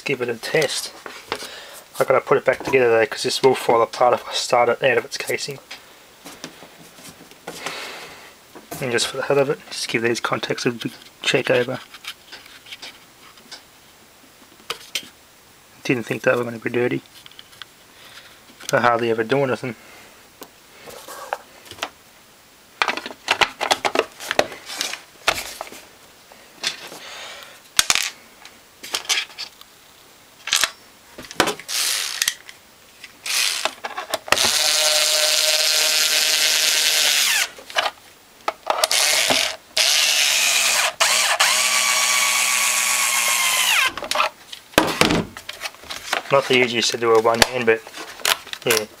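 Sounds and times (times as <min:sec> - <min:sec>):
plastic parts clicking and rattling: 0:22.8 - 0:25.6, 0:30.4 - 0:36.1, 0:37.6 - 0:39.9
power screwdriver running: 0:31.7 - 0:32.3, 0:33.2 - 0:37.5, 0:38.8 - 0:44.0.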